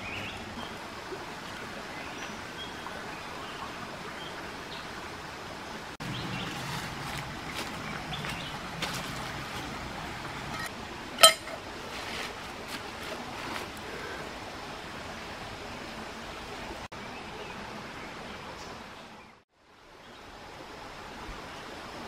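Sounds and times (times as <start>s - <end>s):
rocky stream rushing: 0.0s - 16.9s
stone clinking against stone: 10.5s - 11.6s.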